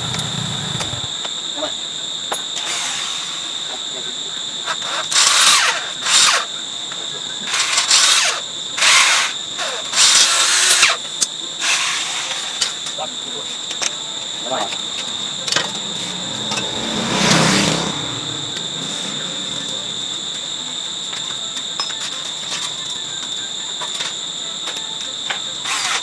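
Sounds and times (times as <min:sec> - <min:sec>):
power drill whirring: 0:00.0 - 0:01.2, 0:02.6 - 0:03.5, 0:04.7 - 0:06.5, 0:07.4 - 0:12.6, 0:25.6 - 0:26.0
steady high-pitched hum: 0:00.0 - 0:26.0.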